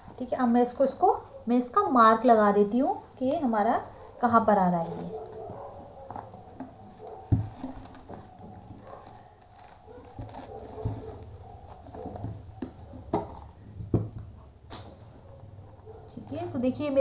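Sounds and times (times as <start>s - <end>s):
fabric rustling: 0.0s - 17.0s
sharp knocks and taps: 11.9s - 14.4s.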